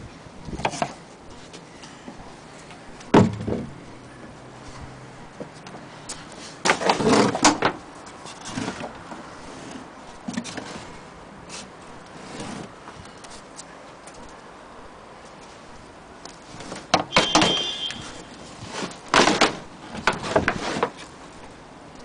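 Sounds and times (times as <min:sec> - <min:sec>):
wooden case knocking and rattling: 0:03.1 - 0:03.7.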